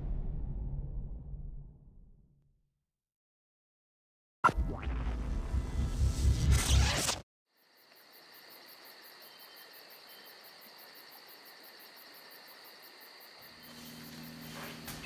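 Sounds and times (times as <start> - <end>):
music: 4.4 - 6.6
crickets chirping: 7.5 - 15.0.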